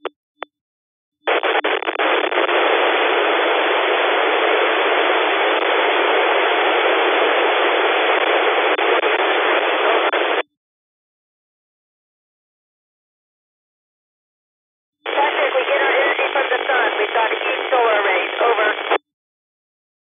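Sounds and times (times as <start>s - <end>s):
radio squelch blips: 1.3s - 4.1s, 15.0s - 19.0s
radio static hiss: 1.3s - 10.4s, 15.1s - 19.0s.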